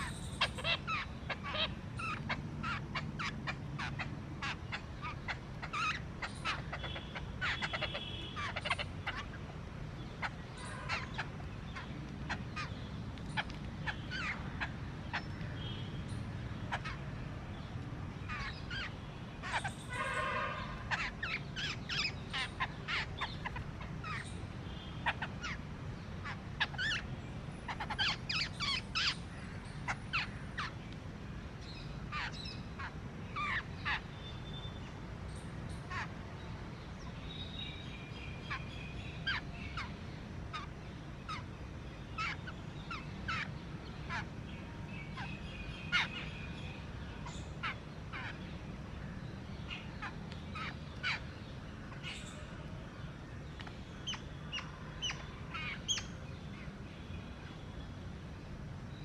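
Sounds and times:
birds chirping: 0.0s - 59.0s
harsh bird call: 18.3s - 24.3s.

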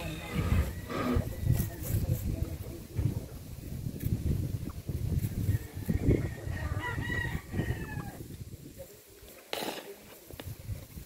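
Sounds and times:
low rumble on microphone: 0.0s - 8.8s
rooster crowing: 5.5s - 8.2s.

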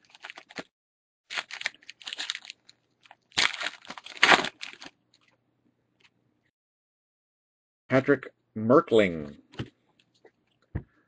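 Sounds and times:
wrapper crinkling and tearing: 0.0s - 0.7s, 1.3s - 5.3s.

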